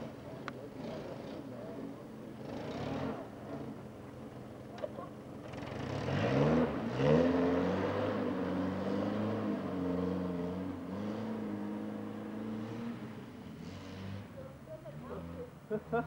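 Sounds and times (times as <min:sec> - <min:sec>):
car engine revving: 0:05.5 - 0:14.3.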